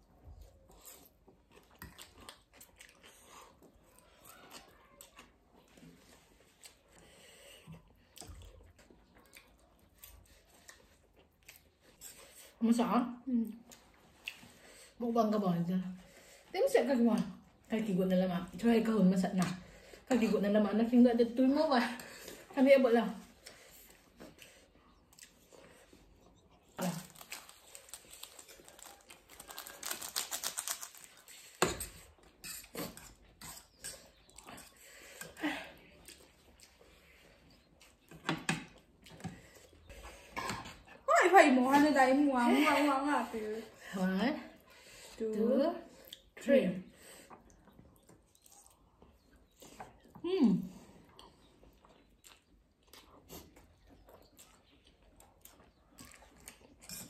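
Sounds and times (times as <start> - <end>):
quiet chewing: 0.0 - 12.6, 13.3 - 15.0, 21.8 - 41.1, 45.8 - 57.0
plastic sachets crinkling: 26.8 - 31.6.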